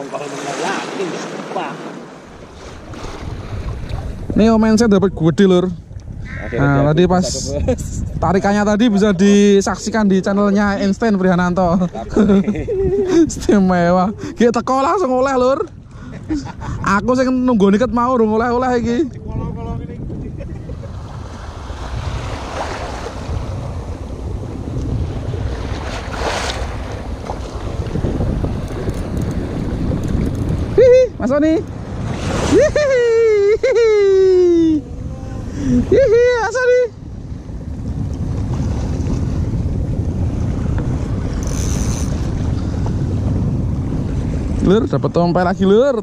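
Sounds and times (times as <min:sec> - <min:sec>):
waves splashing: 0:00.0 - 0:46.0
wind buffeting microphone: 0:02.1 - 0:46.0.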